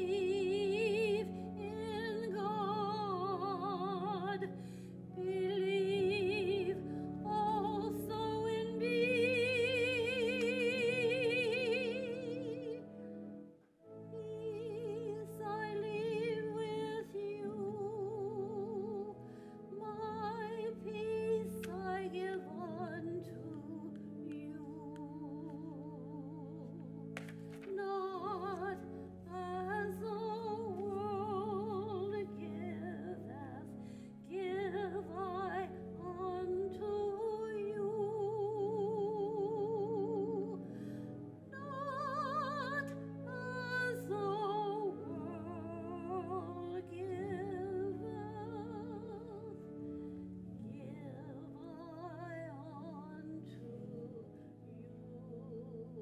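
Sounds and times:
woman singing with vibrato: 0.0 - 4.6, 5.2 - 12.8, 27.7 - 40.6
sustained keyboard accompaniment: 0.0 - 56.0.

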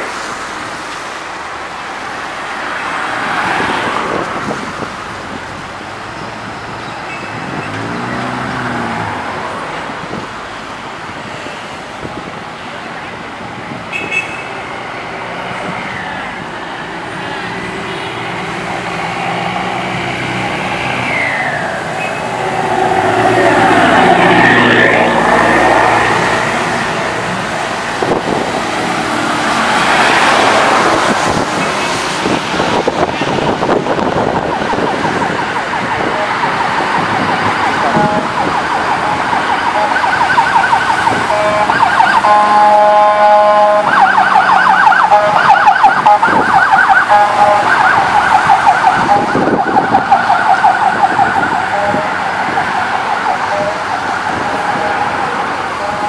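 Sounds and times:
vehicles passing on wet road: 0.0 - 56.0
emergency vehicle siren: 15.5 - 56.0.

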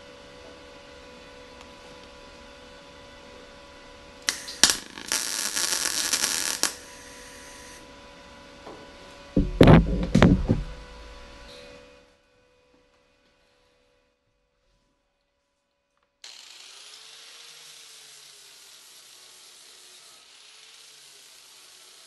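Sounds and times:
welder crackling sizzle: 4.2 - 7.8
welding arc pops: 4.3 - 7.8
loud knocks: 9.4 - 11.4.

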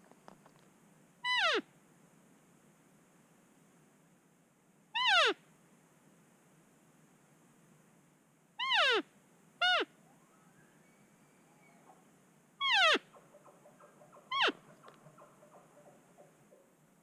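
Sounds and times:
elk mewing calls: 12.6 - 16.6.

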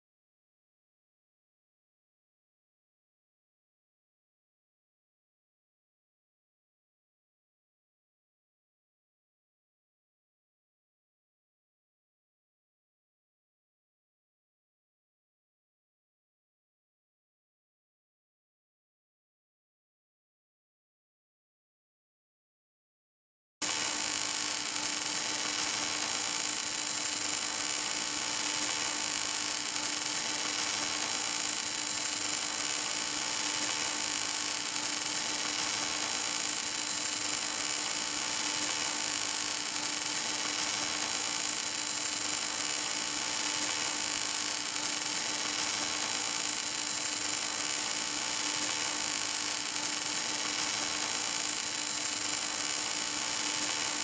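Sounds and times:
welding arc buzzing hiss: 23.6 - 54.0.

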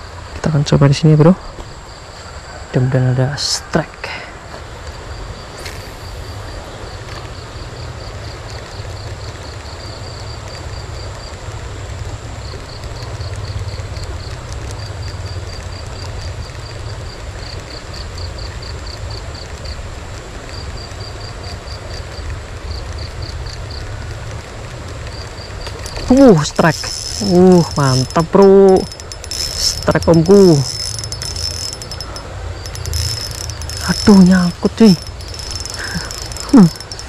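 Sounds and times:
insect chirping: 25.1 - 37.0
thin high whine: 25.8 - 37.0.

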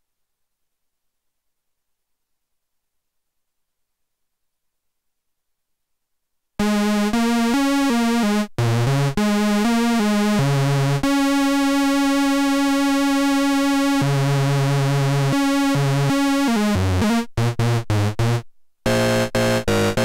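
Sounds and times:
buzzy low synthesizer notes: 6.6 - 20.0.

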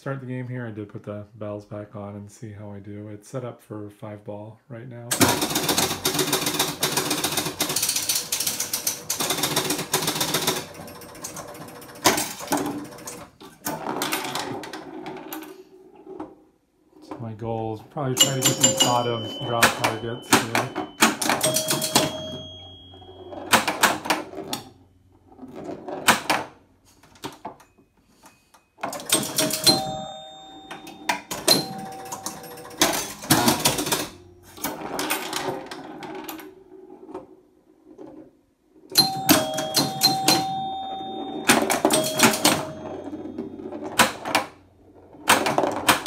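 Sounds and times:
pinball scoring bells ringing: 5.2 - 13.2, 18.0 - 24.8, 28.8 - 35.5, 38.9 - 44.4.

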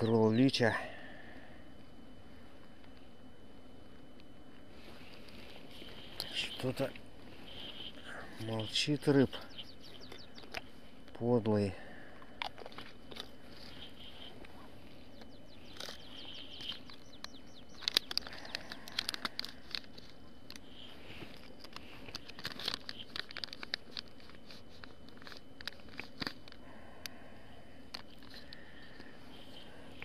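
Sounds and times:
plastic packet crinkling: 15.6 - 20.6, 21.2 - 26.6.

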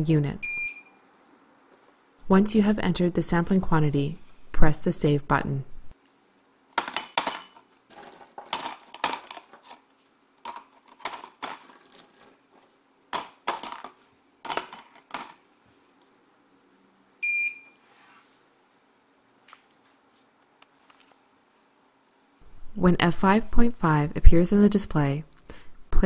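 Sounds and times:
short electronic beep: 0.4 - 1.0, 17.2 - 17.8
metal bolts clattering into plastic bin: 6.8 - 9.8, 10.4 - 12.4.

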